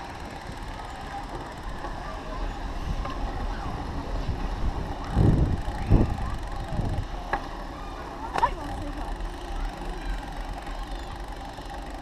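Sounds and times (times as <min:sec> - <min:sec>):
faint voices: 0:00.0 - 0:12.0
wind buffeting microphone: 0:01.5 - 0:07.4.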